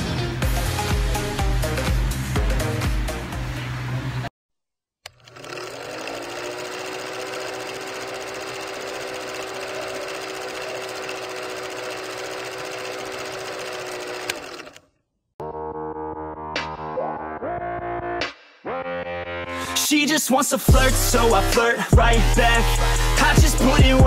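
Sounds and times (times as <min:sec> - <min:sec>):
pop music with a beat: 0:00.0 - 0:03.3, 0:16.6 - 0:24.0
film projector whirring rattle: 0:05.1 - 0:14.8.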